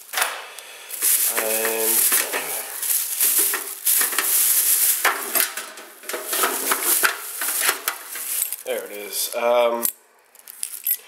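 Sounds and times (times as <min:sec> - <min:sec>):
plastic bag rustling and crinkling: 0:00.9 - 0:09.4
small hard items clinking: 0:00.9 - 0:09.4, 0:10.3 - 0:11.0.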